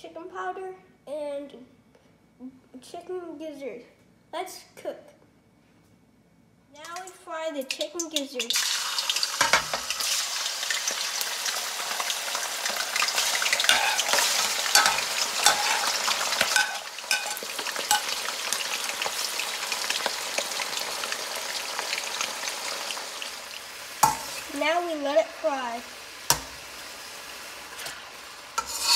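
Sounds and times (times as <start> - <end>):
meat sizzling in hot oil: 8.4 - 28.9.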